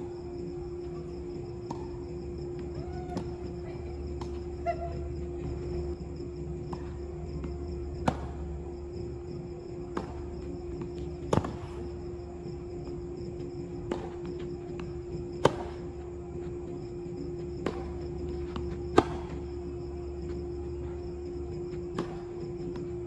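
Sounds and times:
steady hum: 0.0 - 23.0
tennis ball pops: 8.0 - 8.4, 11.2 - 11.6, 13.8 - 14.2, 18.9 - 19.4.

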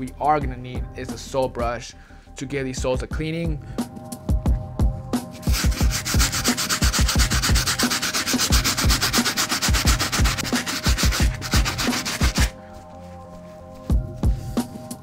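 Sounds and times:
brush scrubbing a rubber sole: 5.3 - 14.9.

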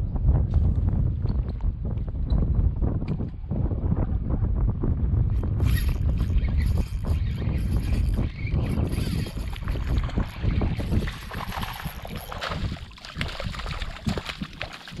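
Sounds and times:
wind buffeting microphone: 0.0 - 15.0
fish splashing in water: 9.3 - 15.0.

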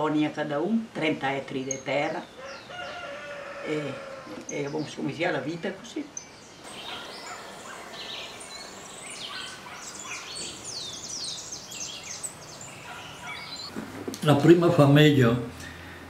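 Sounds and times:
faint background noise: 0.0 - 16.0
songbirds chirping and singing: 1.6 - 13.7.

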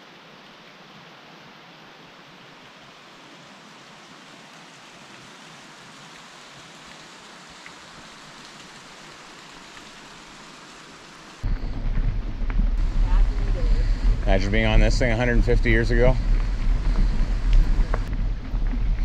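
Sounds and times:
flowing stream water: 0.0 - 11.9, 12.8 - 19.0
loud low rumble: 11.4 - 19.0.

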